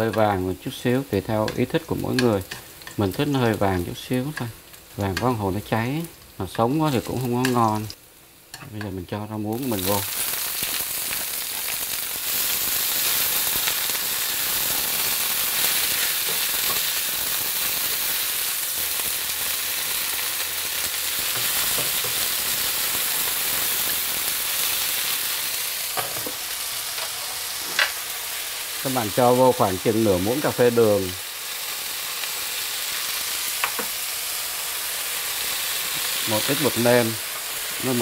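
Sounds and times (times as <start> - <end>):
vegetables sizzling in oil: 0.0 - 38.0.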